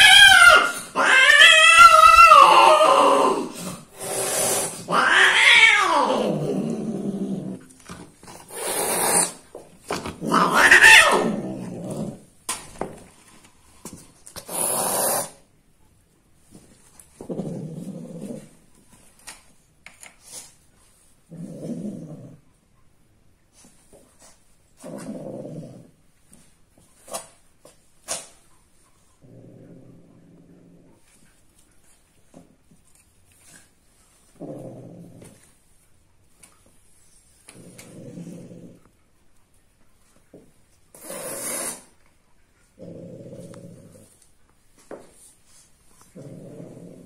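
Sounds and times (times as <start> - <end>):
cat yowling into growl: 0.0 - 3.5, 4.8 - 6.6, 10.2 - 11.5
cat hissing: 0.0 - 6.5, 8.4 - 9.4, 10.2 - 11.8, 14.4 - 15.5, 40.9 - 42.0.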